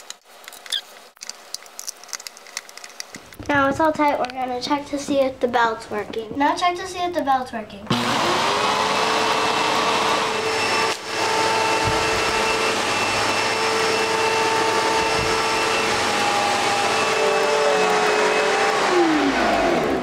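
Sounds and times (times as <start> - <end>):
vacuum cleaner motor whine: 7.9 - 20.0.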